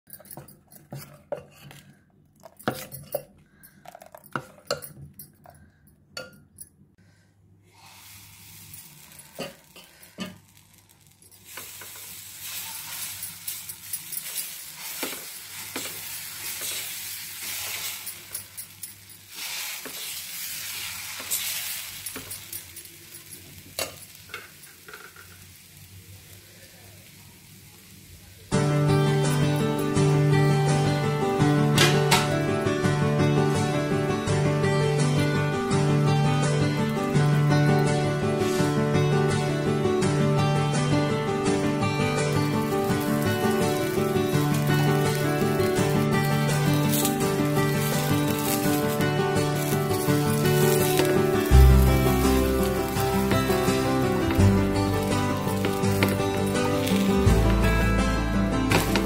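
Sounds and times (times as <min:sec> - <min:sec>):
spoon scraping steel bowl: 0:00.1 - 0:03.3, 0:08.5 - 0:25.1
batter sizzling on hot pan: 0:07.7 - 0:28.5, 0:41.9 - 0:58.0.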